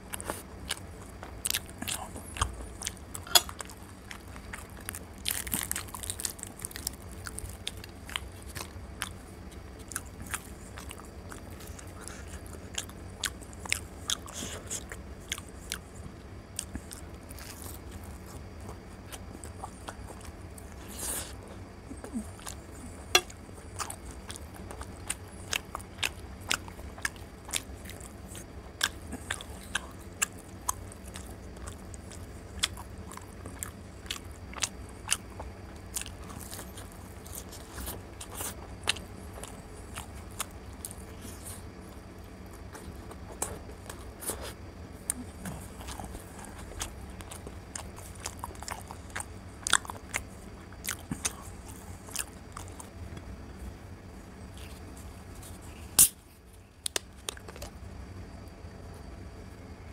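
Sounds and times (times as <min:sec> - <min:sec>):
man chewing food: 0:00.0 - 0:59.1
wet mouth clicks and smacks: 0:56.0 - 0:56.2, 0:56.8 - 0:57.7.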